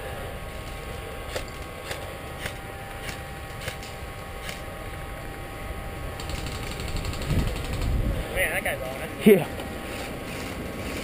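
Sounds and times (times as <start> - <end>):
microphone rumble and hiss: 3.5 - 11.0.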